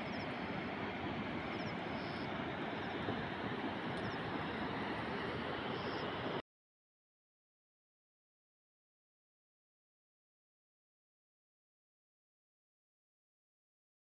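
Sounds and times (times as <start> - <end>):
steady rushing noise: 0.0 - 6.4.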